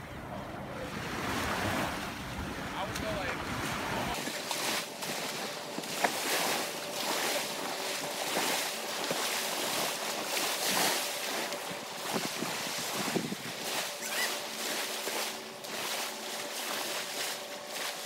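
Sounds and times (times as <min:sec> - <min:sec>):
surf washing on sandy shore: 0:00.8 - 0:18.0
wind on microphone: 0:12.0 - 0:14.2.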